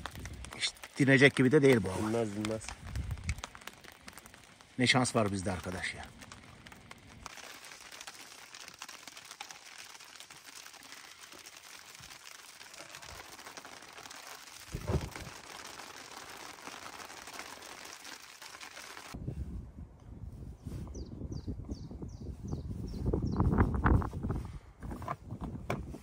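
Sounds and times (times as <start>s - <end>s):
rain and hail on a tent: 0.0s - 19.2s.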